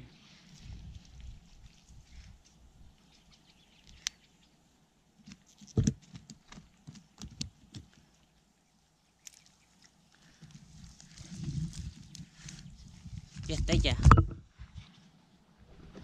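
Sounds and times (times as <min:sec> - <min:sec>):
stronger knocks: 0:14.0 - 0:14.4.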